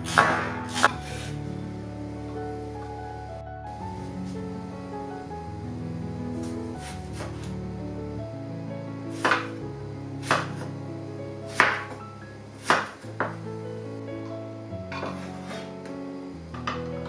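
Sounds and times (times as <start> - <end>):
background music: 0.0 - 17.0
knife chopping on cutting board: 0.1 - 1.0, 9.2 - 9.5, 10.2 - 10.6, 11.5 - 12.0, 12.6 - 13.4.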